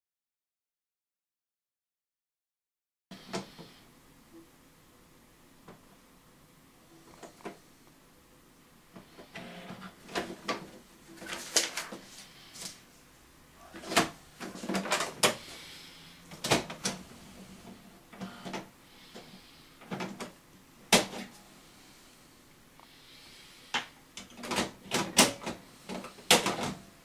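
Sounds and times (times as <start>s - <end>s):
printer plastic clicks and knocks: 26.3s - 26.8s.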